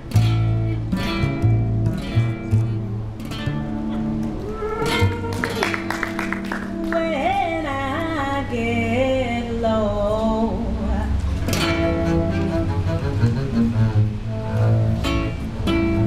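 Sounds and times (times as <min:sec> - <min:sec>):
acoustic guitar: 0:00.0 - 0:16.0
double bass: 0:00.0 - 0:16.0
woman singing: 0:06.6 - 0:11.2.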